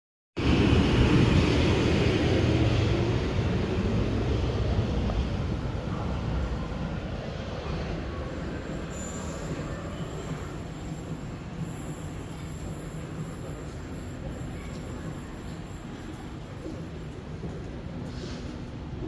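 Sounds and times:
train rumble pulling away: 0.4 - 19.0.

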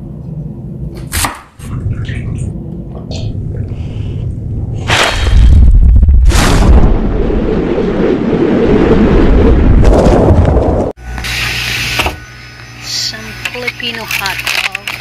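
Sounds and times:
loud low rumbling: 0.0 - 11.2
whoosh: 3.1 - 10.9.

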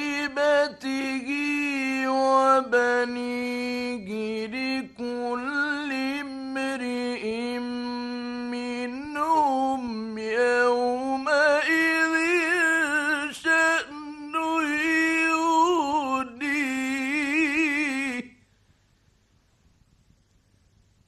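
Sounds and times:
man chanting melodically: 0.0 - 18.4.

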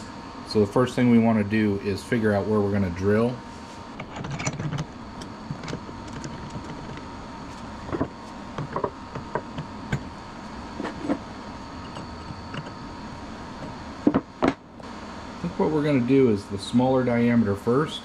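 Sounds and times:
steady background hum: 0.0 - 18.0
metal tools clicking and knocking: 4.0 - 7.0.

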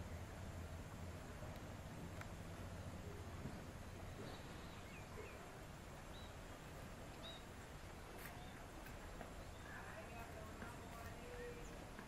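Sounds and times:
distant bird chirps: 2.7 - 12.0.

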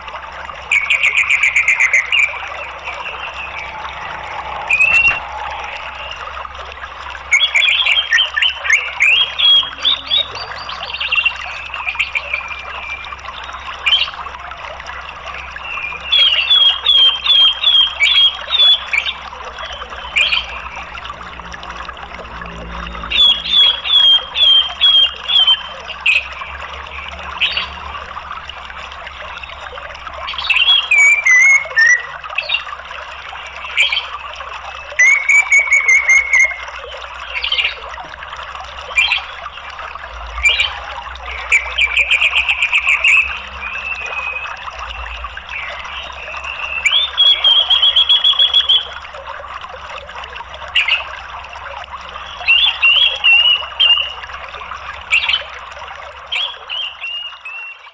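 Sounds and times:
thrush calling: 0.0 - 13.0, 23.1 - 27.8, 30.2 - 32.6, 34.8 - 37.9
flowing water: 0.0 - 57.9.

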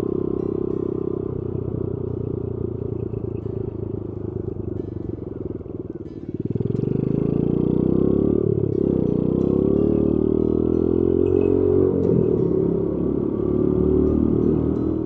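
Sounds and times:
motorcycle engine under throttle: 0.0 - 15.0.

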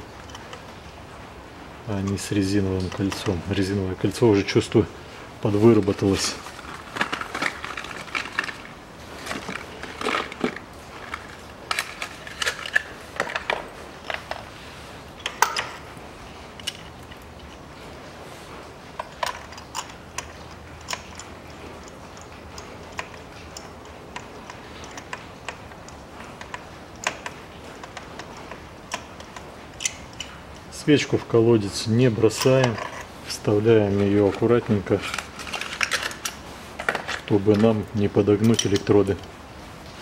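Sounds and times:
cardboard crinkling: 5.6 - 14.6.

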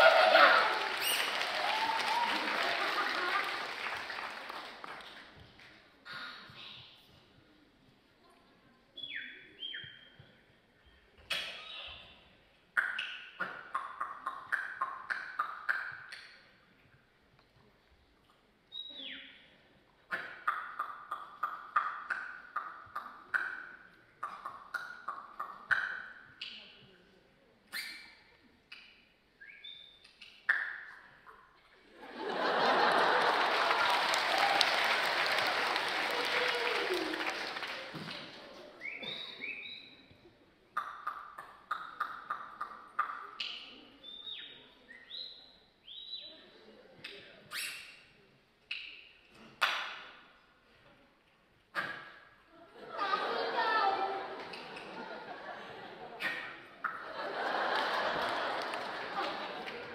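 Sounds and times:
mouth-made squeaky whistles: 0.9 - 2.1, 27.7 - 28.2, 29.4 - 30.9, 38.8 - 40.1, 47.5 - 48.0.

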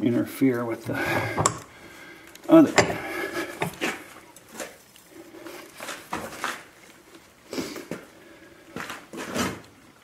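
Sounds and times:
metal bar knocking and scraping vise: 0.9 - 1.7, 2.6 - 3.9.

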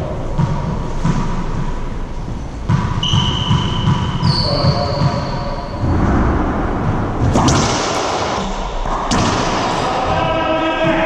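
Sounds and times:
low rumble: 5.7 - 11.0
racquetball cracks echoing: 7.0 - 11.0.

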